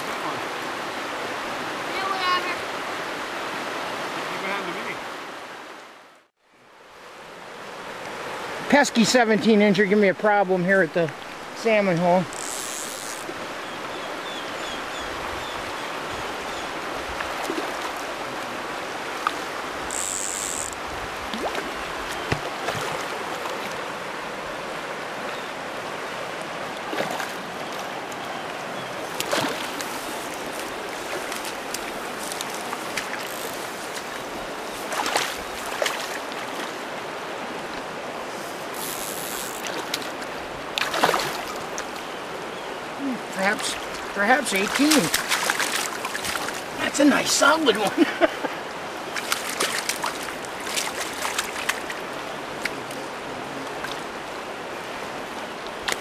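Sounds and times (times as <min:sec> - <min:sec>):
river current rushing: 0:00.0 - 0:56.0.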